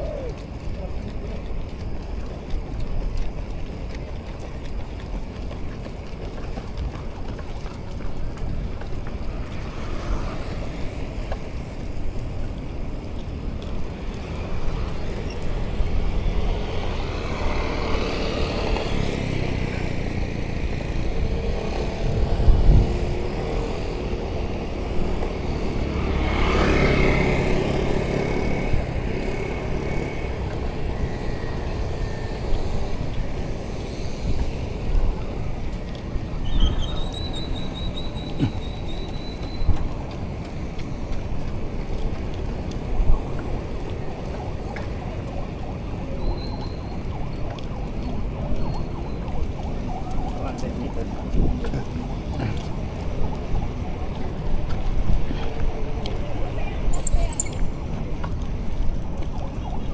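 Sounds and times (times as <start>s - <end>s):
road traffic rumble: 0.0s - 59.9s
vehicles passing close by: 0.0s - 59.9s.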